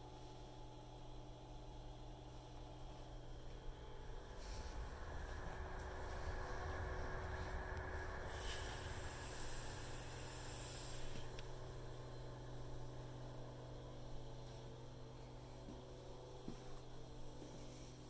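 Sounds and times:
low machine hum: 0:00.0 - 0:18.0
hiss: 0:04.2 - 0:11.6.

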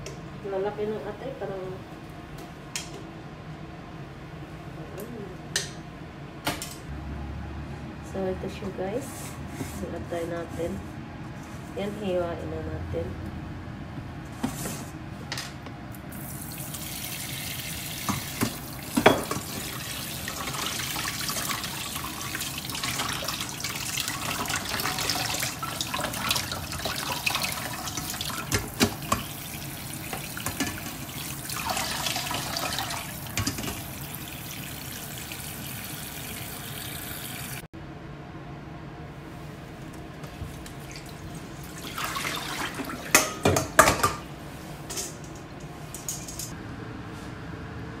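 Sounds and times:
tap water splashing into sink: 0:18.0 - 0:29.4.

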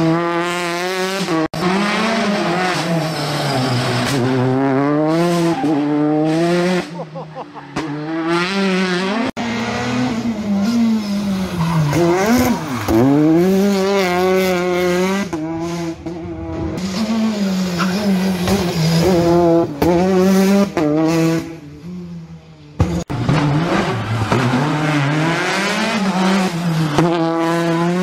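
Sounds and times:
rally car engine accelerating: 0:00.0 - 0:28.0.

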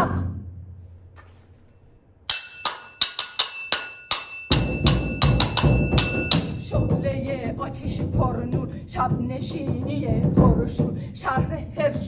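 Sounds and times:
handbell ringing: 0:02.3 - 0:07.0
barrel drum beats: 0:03.0 - 0:12.0.

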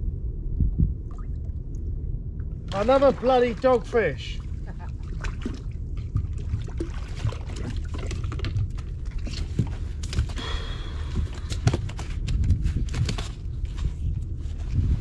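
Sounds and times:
wind on microphone: 0:00.0 - 0:02.7, 0:11.0 - 0:15.0
knocks and rustles of handling: 0:11.2 - 0:15.0.

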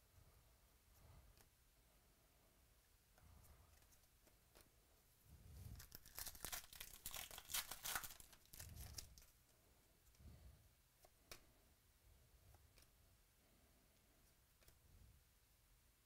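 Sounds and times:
foil wrapper crinkling: 0:05.8 - 0:09.3.

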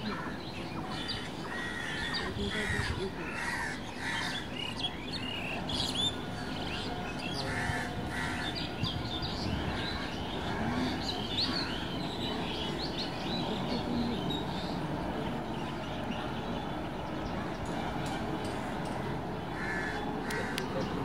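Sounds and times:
birds chirping: 0:00.0 - 0:21.0
crow cawing: 0:00.9 - 0:04.8, 0:07.4 - 0:08.7, 0:19.5 - 0:20.7.

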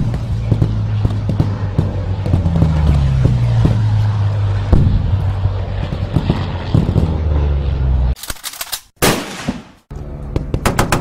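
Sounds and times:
low steady drone: 0:00.0 - 0:08.2.

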